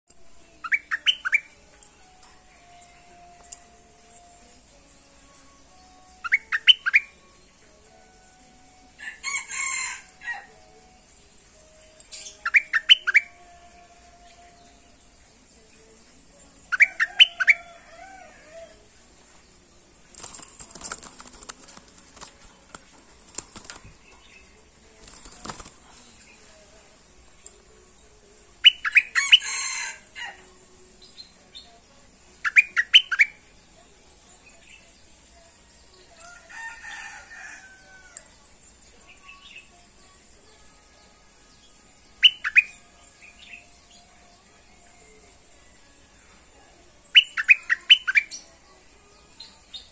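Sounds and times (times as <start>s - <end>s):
rustling in cage: 20.1s - 24.2s.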